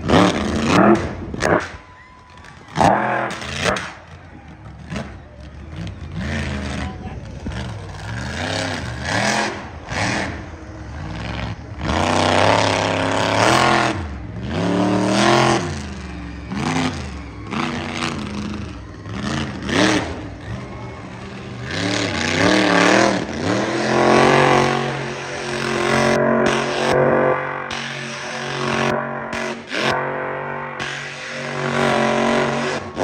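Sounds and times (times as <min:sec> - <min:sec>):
monster truck engine revving: 0:00.0 - 0:33.0.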